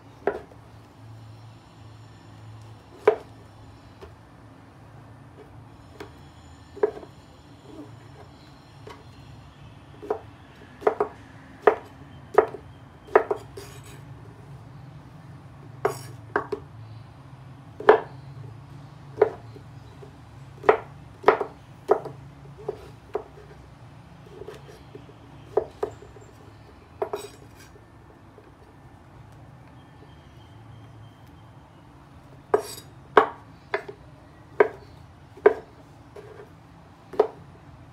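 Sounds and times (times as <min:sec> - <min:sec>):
knife knocking on wooden board: 0:34.6 - 0:34.8.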